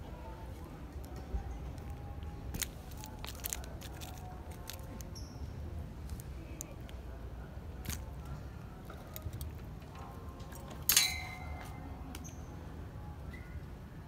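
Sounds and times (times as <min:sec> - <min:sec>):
metal tools clinking: 0:10.9 - 0:11.5.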